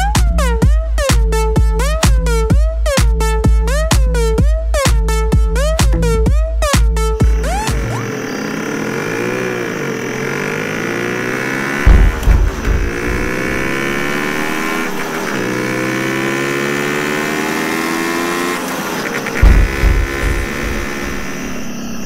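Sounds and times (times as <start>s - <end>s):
heavy low thuds: 0.2s - 7.9s, 11.8s - 15.7s, 19.4s - 21.5s
motorcycle engines accelerating: 5.6s - 22.0s.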